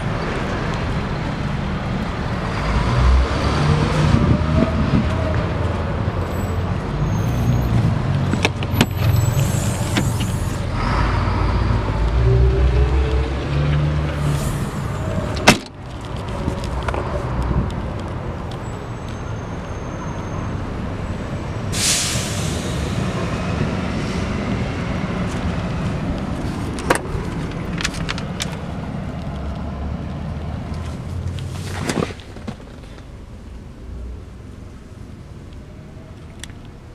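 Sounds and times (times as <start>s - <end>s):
short loud hiss: 21.7s - 22.7s.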